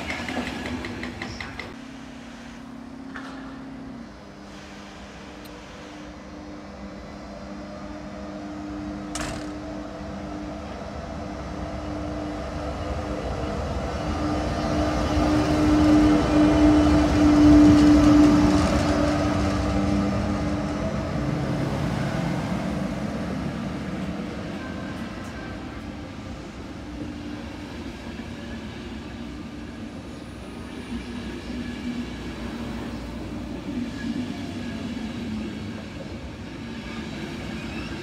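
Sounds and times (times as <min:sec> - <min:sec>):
train coaches rolling: 0:00.0 - 0:06.0
electric locomotive humming: 0:00.0 - 0:38.0.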